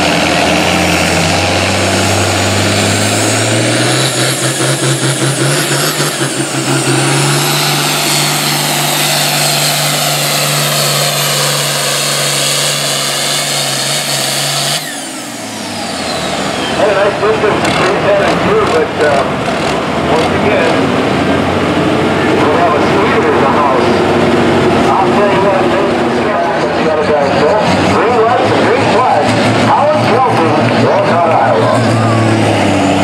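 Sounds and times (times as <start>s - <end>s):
diesel tractor engine at full throttle: 0.0s - 33.0s
high turbo whistle: 14.1s - 16.8s.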